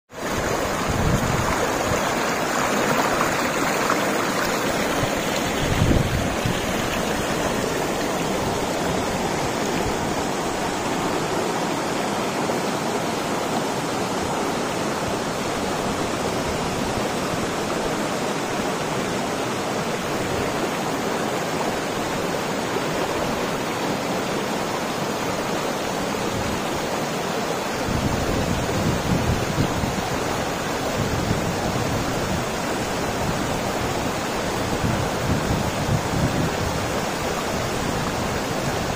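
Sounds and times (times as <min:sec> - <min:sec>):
stream rushing over stones: 0:00.1 - 0:38.9
wind rumble on microphone: 0:00.2 - 0:02.6, 0:04.6 - 0:10.7, 0:27.8 - 0:38.9.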